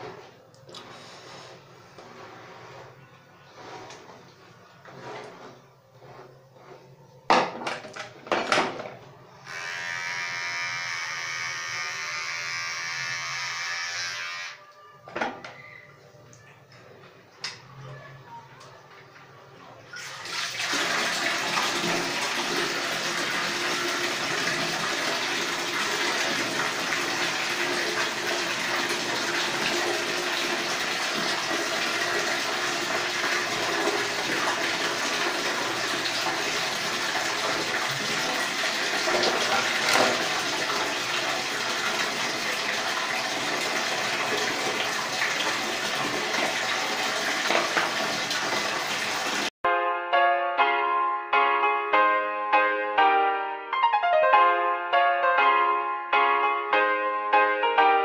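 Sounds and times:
tap water running into container: 0:19.7 - 0:49.5.

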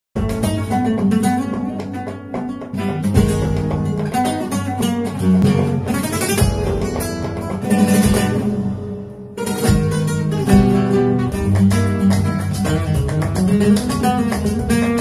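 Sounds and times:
flamenco guitar: 0:00.2 - 0:15.0.

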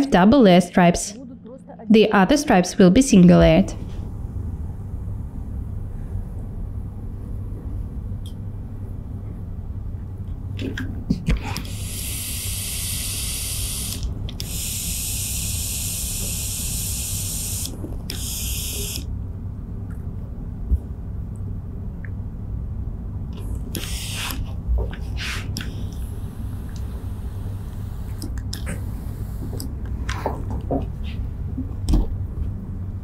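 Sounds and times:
steam iron hissing: 0:11.6 - 0:19.0, 0:23.7 - 0:24.4.

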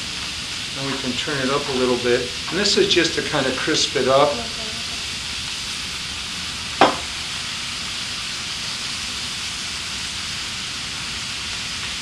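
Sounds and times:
meat sizzling in a skillet: 0:00.0 - 0:12.0
sharp knock: 0:06.8 - 0:07.1.

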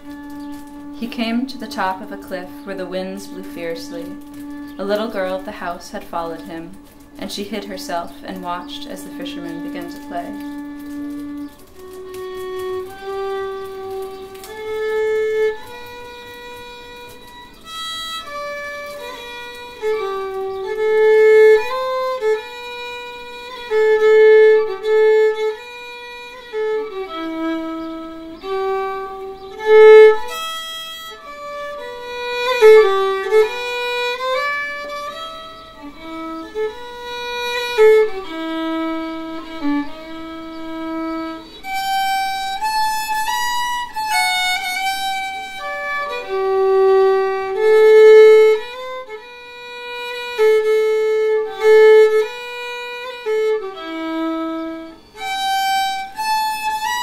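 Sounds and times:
solo fiddle playing slow tune: 0:00.0 - 0:57.0.

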